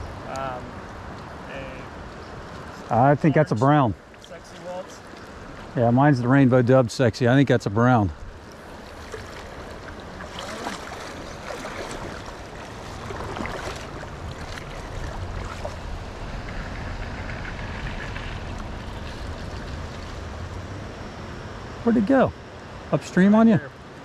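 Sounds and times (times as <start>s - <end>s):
river water running: 0.0s - 24.0s
low rumble: 11.0s - 21.9s.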